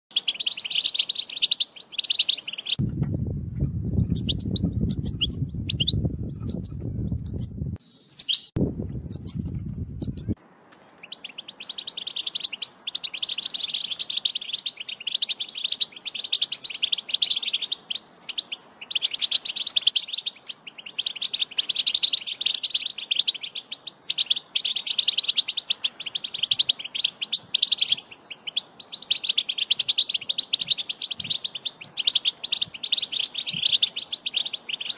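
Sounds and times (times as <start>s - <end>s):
finch twittering song: 0.1s - 3.1s, 3.8s - 34.9s
low rumbling noise: 2.8s - 7.8s, 8.6s - 10.6s.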